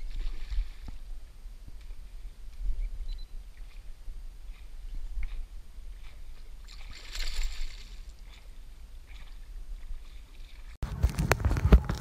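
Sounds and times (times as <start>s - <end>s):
water splash: 4.5s - 12.0s.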